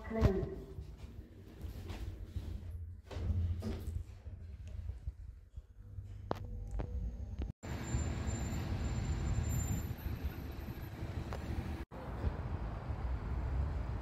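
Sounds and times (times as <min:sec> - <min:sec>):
city street traffic: 0:07.0 - 0:14.0.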